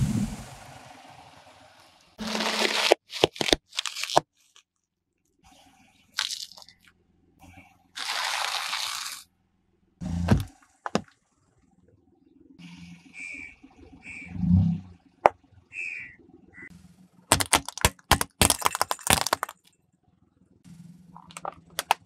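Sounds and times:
car tyre crushing objects: 0:02.2 - 0:04.6, 0:06.2 - 0:06.8, 0:08.0 - 0:09.3, 0:10.1 - 0:11.1, 0:17.3 - 0:19.7, 0:21.2 - 0:22.0.

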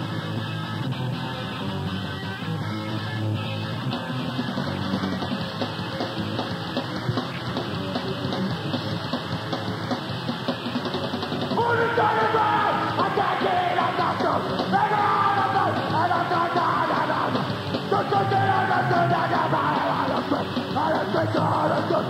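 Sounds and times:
distorted guitars: 0:00.0 - 0:22.0
drums: 0:00.0 - 0:22.0
person yelling vocals: 0:11.6 - 0:22.0.

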